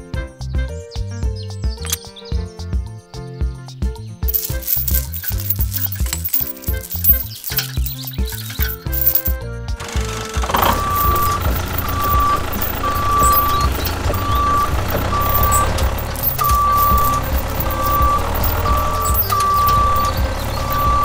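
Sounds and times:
low engine rumble: 4.3s - 21.0s
vehicle reversing beeper: 10.5s - 21.0s.

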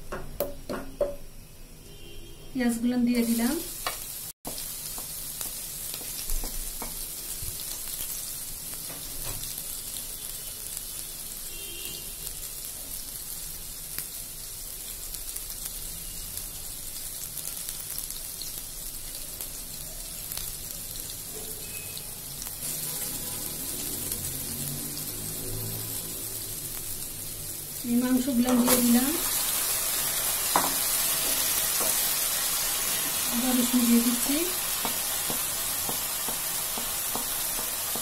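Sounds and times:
onions sizzling in hot oil: 2.6s - 38.0s.

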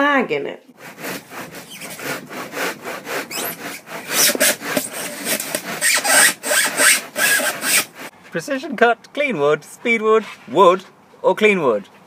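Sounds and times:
wooden board scraping: 0.8s - 8.1s.

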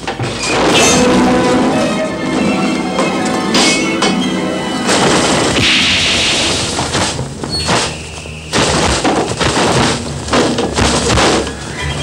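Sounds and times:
hissing crash: 0.4s - 9.0s
sudden loud burst: 4.8s - 7.2s
sharp hits and thumps: 4.9s - 11.6s.

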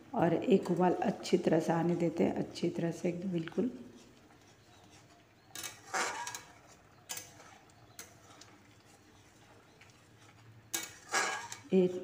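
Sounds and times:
metal spatula scraping a pan: 4.0s - 12.0s.

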